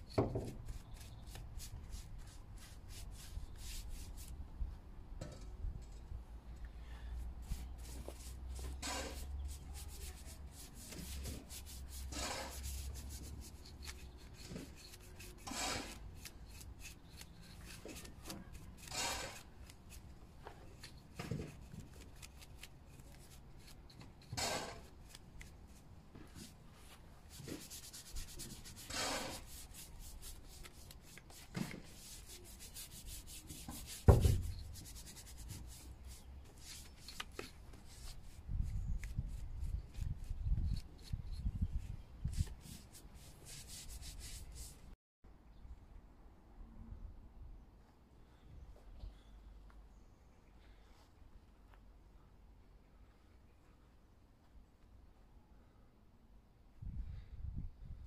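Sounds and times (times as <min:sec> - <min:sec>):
paintbrush scrubbing rough timber: 0:00.0 - 0:04.4, 0:07.4 - 0:20.1, 0:26.4 - 0:41.2, 0:42.4 - 0:44.9.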